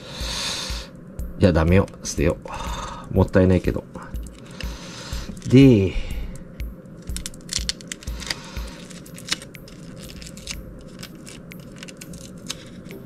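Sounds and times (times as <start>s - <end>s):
foil crinkling and crackling: 4.1s - 13.0s.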